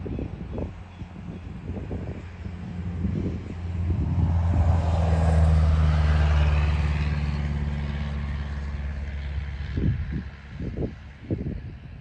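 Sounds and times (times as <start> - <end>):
diesel train engine drone: 0.0 - 12.0.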